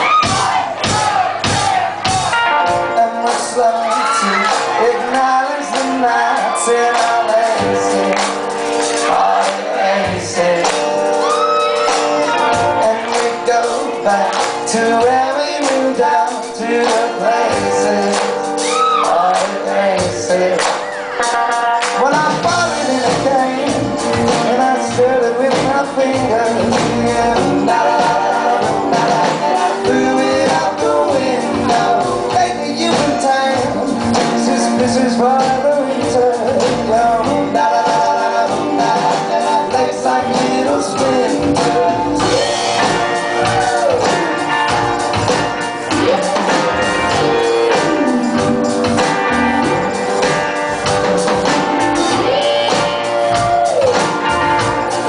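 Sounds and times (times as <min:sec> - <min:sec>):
drums: 0:00.0 - 0:55.0
electric guitars: 0:02.1 - 0:55.0
man singing: 0:02.5 - 0:44.8, 0:45.5 - 0:50.4, 0:51.4 - 0:53.2
electric bass: 0:21.4 - 0:55.0.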